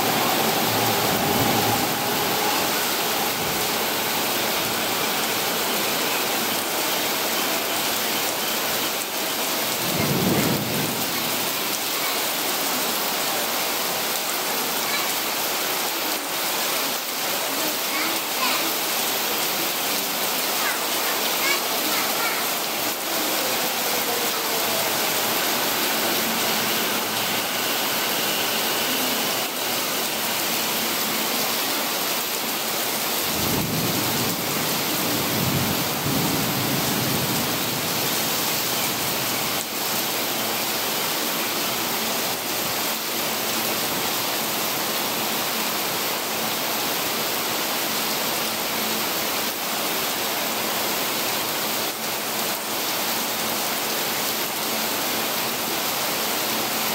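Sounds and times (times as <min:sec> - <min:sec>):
torrential rain on a roof: 0:00.0 - 0:56.9
water streaming off roof: 0:00.0 - 0:56.9
low rumble of thunder: 0:09.8 - 0:11.6, 0:33.2 - 0:39.1.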